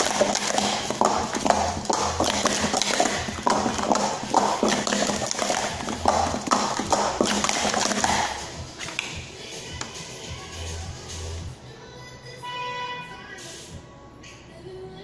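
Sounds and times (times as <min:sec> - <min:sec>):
plastic cups clacking: 0:00.0 - 0:09.2.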